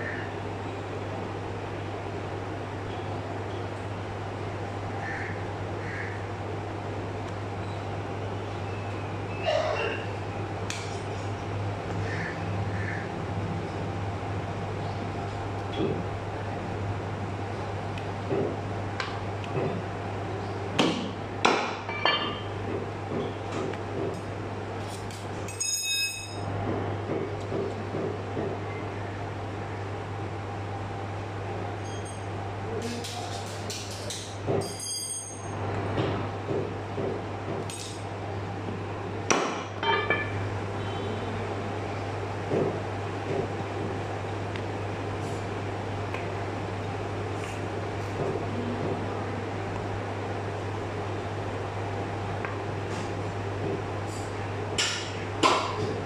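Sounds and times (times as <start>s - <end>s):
ringing metallic clinks: 25.5s - 26.5s, 34.6s - 35.6s.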